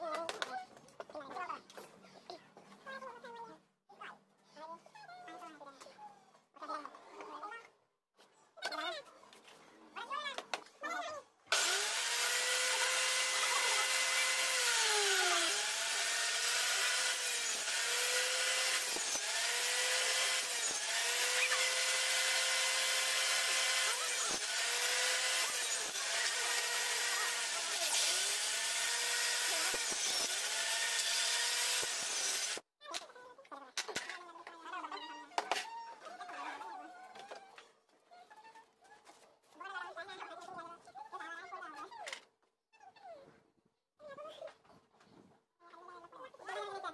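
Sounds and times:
saw blade whining through wood: 11.5 - 32.6.

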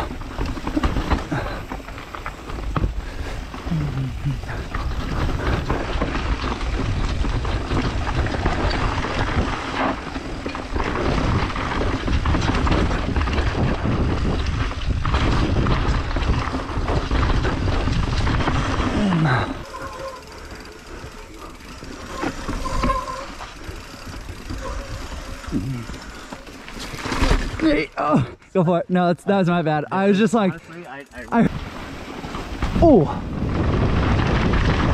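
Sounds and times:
bike rattling over dirt and roots: 0.0 - 34.9
wind buffeting microphone: 10.9 - 19.7, 32.6 - 34.9.

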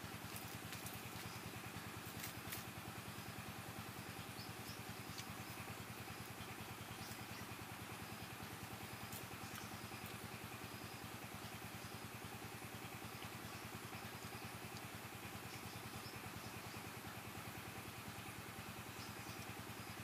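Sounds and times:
small engine idling: 0.0 - 20.0
faint ticks: 14.6 - 15.7.

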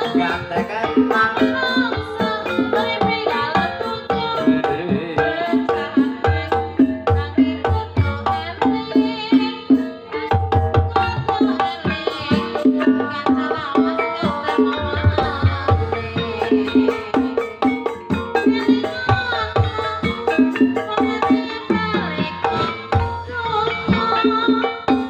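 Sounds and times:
hand drums beating: 0.0 - 25.0
metallophone notes: 12.4 - 25.0.

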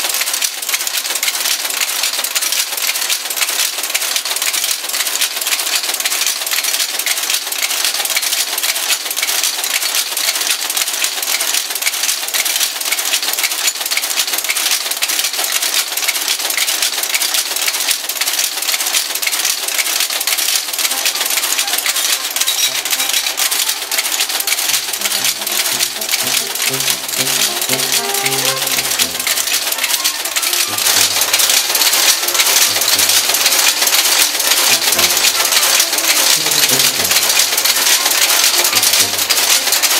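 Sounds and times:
machine rapid metallic clatter: 0.0 - 39.9
faint music: 20.4 - 39.9.

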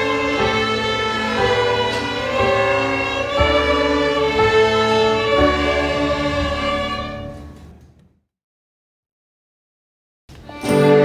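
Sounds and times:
string orchestra playing bowed notes: 0.0 - 7.9, 10.4 - 11.0.

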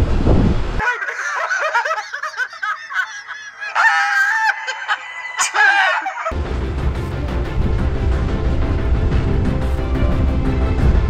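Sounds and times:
poultry calls: 0.8 - 6.3
man laughing hard: 0.8 - 6.4
music: 6.3 - 11.0.

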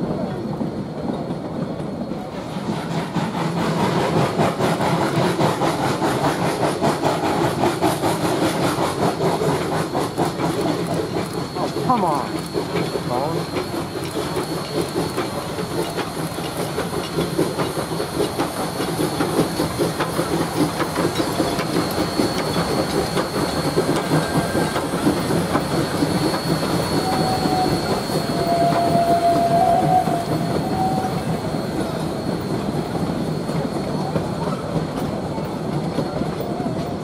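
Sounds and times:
steam train passing: 0.0 - 37.0
steam hissing: 2.3 - 37.0
wheels clacking over rail joints: 4.1 - 30.9.

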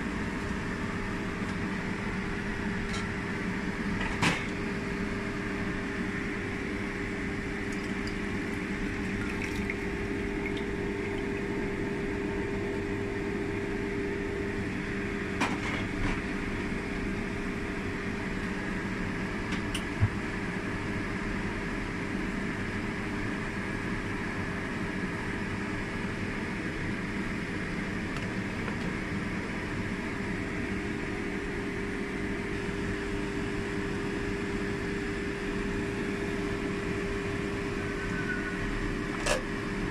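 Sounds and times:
pot simmering with hiss: 6.6 - 12.6.

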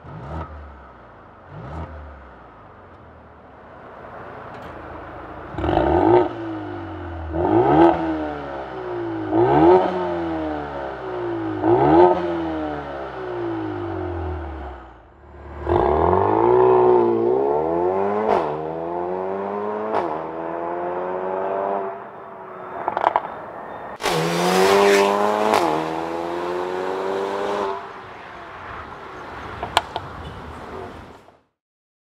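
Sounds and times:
car engine revving hard: 5.5 - 14.8, 15.4 - 22.0, 24.0 - 28.0.

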